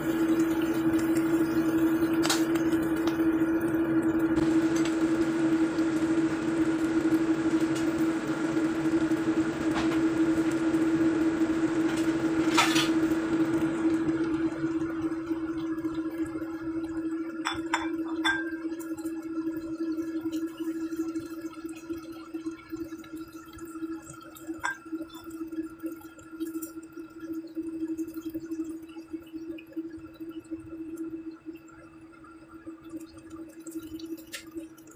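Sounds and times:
steady hum: 0:00.0 - 0:26.2
fish sizzling in a pan: 0:00.0 - 0:31.6.

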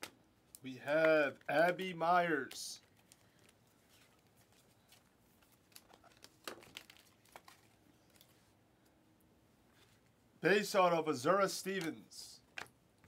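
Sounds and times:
trading cards rustling: 0:02.2 - 0:08.5.

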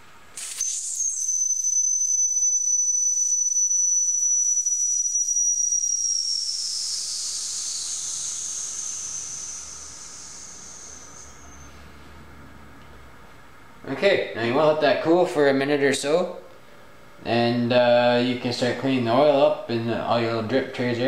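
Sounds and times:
steam venting with whistling hiss: 0:00.4 - 0:12.0.

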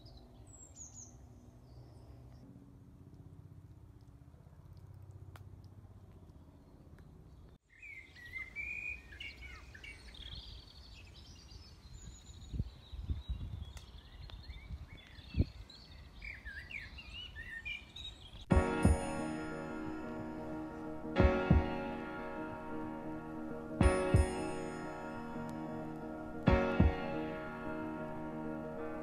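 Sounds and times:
songbirds chirping and singing: 0:06.6 - 0:19.0
low thumps: 0:21.2 - 0:21.8, 0:26.5 - 0:27.2.

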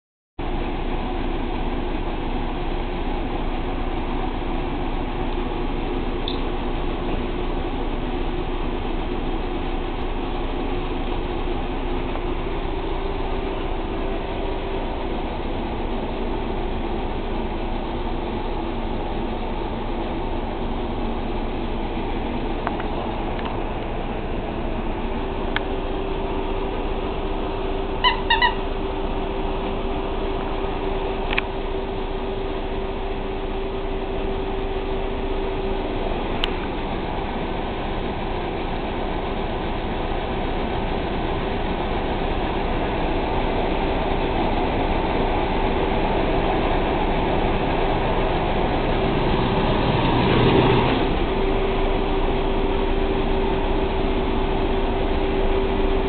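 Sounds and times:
short high-pitched squeaks: 0:28.0 - 0:28.7.

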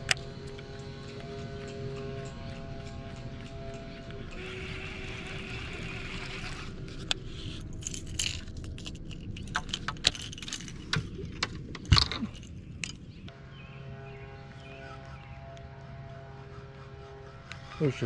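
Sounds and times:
fishing tackle clicking and rattling: 0:00.0 - 0:13.3.

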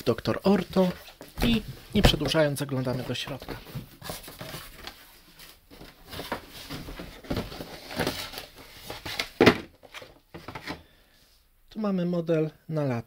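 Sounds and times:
cardboard boxes rustling and scraping: 0:00.5 - 0:10.8.

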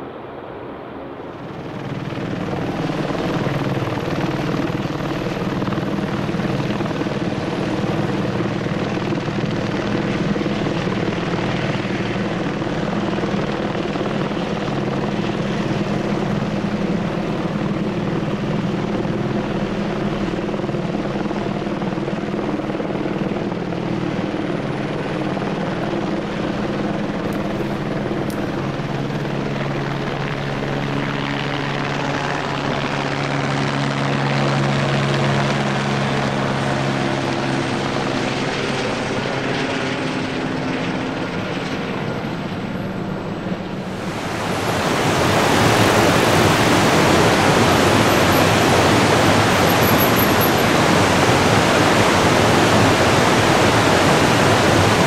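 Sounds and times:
helicopter rotor drone: 0:00.0 - 0:55.0.

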